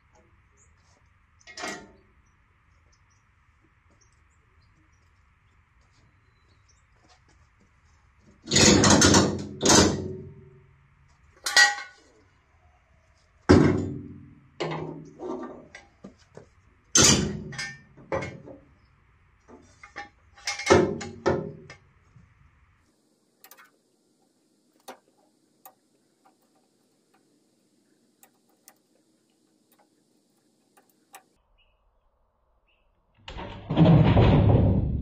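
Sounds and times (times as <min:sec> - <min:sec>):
metal clanks and knocks: 0:01.5 - 0:02.0, 0:08.4 - 0:10.4, 0:11.4 - 0:12.1, 0:13.5 - 0:18.7, 0:19.5 - 0:21.8.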